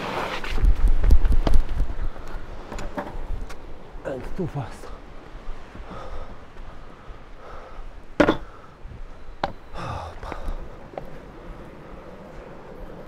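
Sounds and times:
longboard clacking on tarmac: 0.0 - 4.4.

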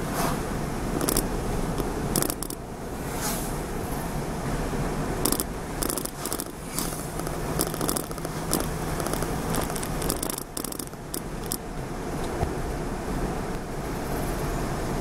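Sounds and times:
engine and tyre rumble: 0.0 - 15.0
short rattles and clicks: 0.9 - 2.6, 5.2 - 11.6.

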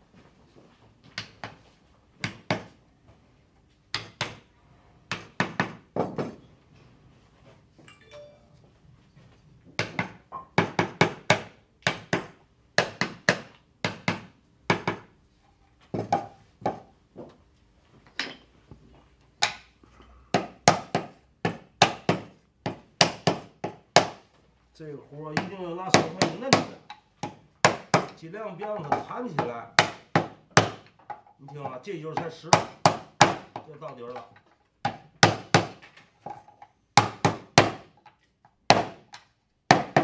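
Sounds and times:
hammer tapping wood: 9.8 - 15.1, 20.3 - 24.3, 25.3 - 35.8.

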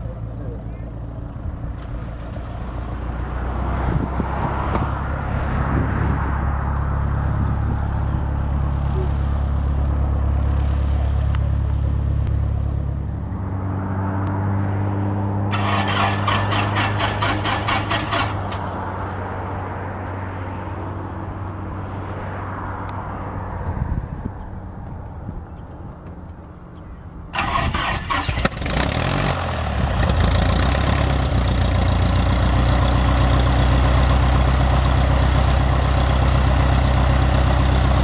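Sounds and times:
light aircraft engine humming: 0.0 - 4.0, 4.7 - 14.4, 20.0 - 28.8, 29.4 - 38.0
aircraft engine idling: 15.5 - 18.6, 29.4 - 38.0.

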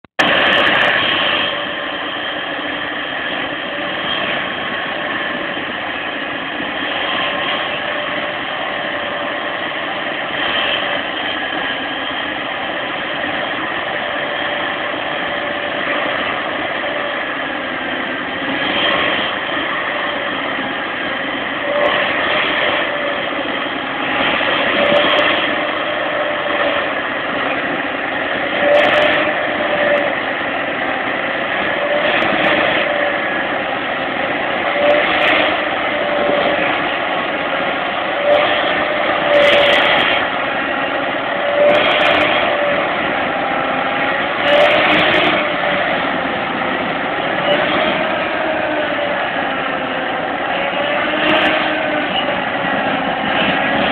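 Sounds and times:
tractor diesel engine at full power: 0.0 - 53.9
spading machine churning soil: 0.1 - 53.9.

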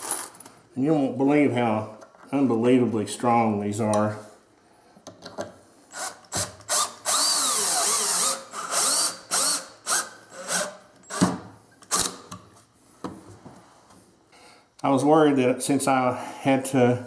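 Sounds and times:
cordless drill driving screws into wood: 5.9 - 12.4.

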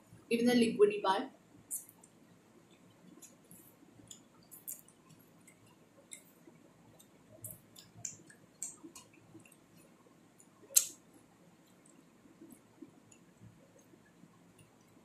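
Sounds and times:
person chewing: 2.7 - 9.8
wet mouth clicks and lip smacks: 4.1 - 6.3, 7.0 - 9.6, 10.7 - 11.0.

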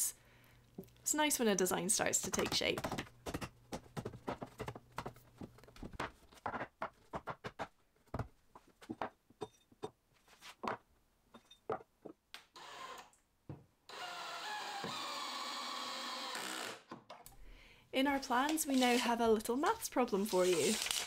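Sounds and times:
wooden boards knocking: 2.3 - 9.2
cordless drill driving screw: 12.6 - 13.1, 13.9 - 16.9.

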